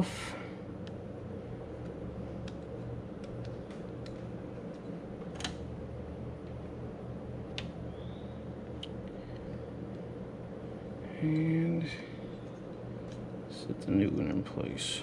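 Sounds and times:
fan humming: 0.0s - 15.0s.

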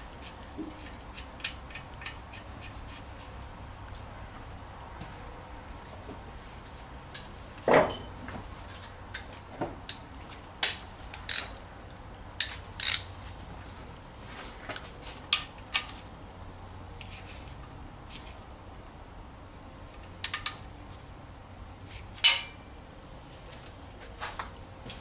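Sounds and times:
metal tools knocking: 7.9s - 8.2s
ratchet wrench clicking: 11.2s - 11.5s, 12.4s - 13.1s.

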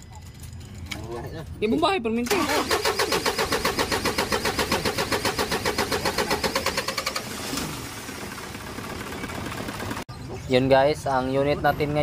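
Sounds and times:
quiet steady engine sound: 0.0s - 12.0s
diesel engine starter cranking: 2.3s - 8.5s.

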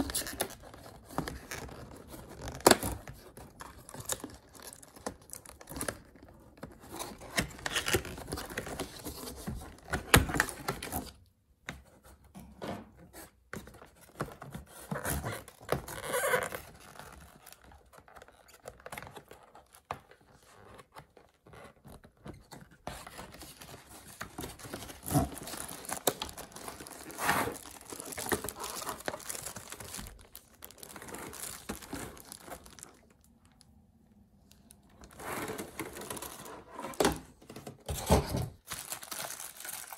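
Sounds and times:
packaging rustling: 21.2s - 33.6s, 34.5s - 39.9s
cardboard sliding and scraping: 26.8s - 27.7s, 35.1s - 37.0s.

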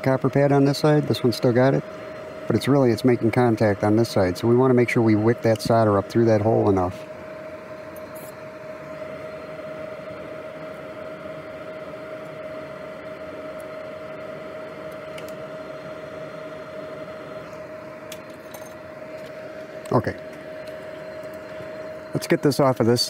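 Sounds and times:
electronic equipment humming: 0.0s - 23.0s.

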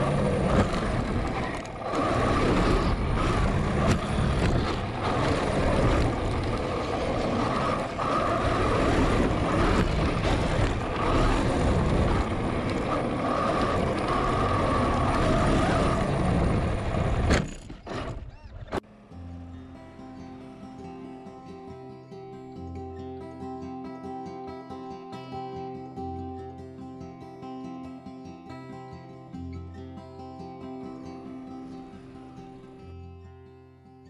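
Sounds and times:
drivetrain and chassis clatter: 0.0s - 18.8s
electric motor and gears whining: 0.0s - 18.9s.

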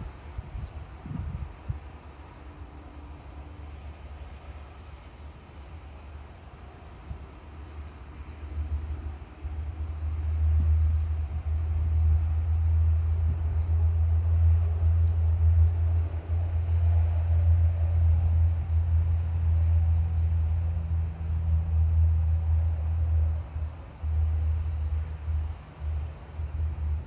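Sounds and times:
storm wind buffeting microphone: 0.0s - 2.0s.

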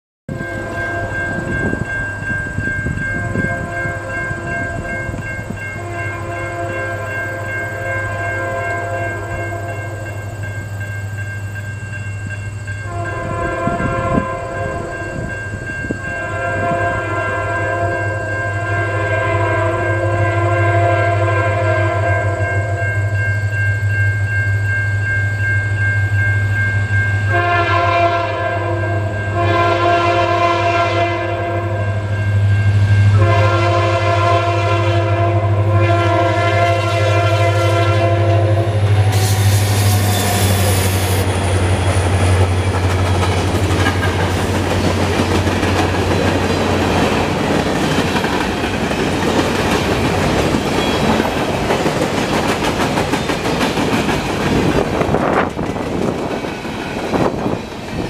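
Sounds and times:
distant locomotive air horn: 0.3s - 1.6s, 5.7s - 10.1s, 12.8s - 15.2s, 16.0s - 22.9s, 27.2s - 42.4s
high ringing warning bell: 0.3s - 19.0s, 21.9s - 27.6s, 31.4s - 33.4s, 38.7s - 52.4s.

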